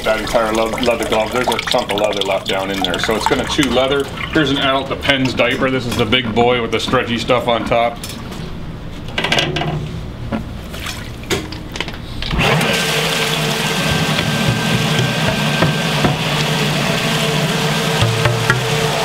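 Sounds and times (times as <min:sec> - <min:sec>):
pump motor hum: 0:12.2 - 0:19.0
knocks: 0:14.1 - 0:16.3, 0:18.0 - 0:18.8.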